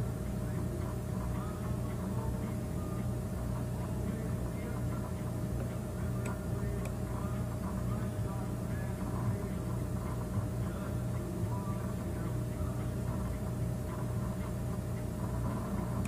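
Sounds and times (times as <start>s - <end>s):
low background hum: 0.0s - 16.0s.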